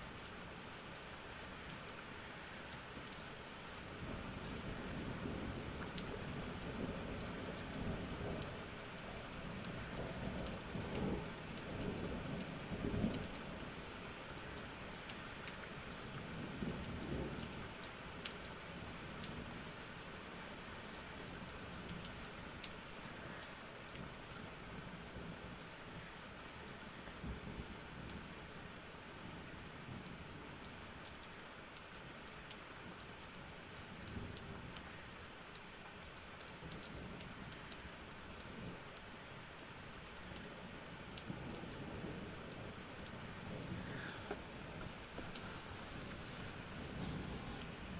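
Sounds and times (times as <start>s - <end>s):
steady rain: 0.0s - 47.9s
thunder rumbling: 41.3s - 47.9s.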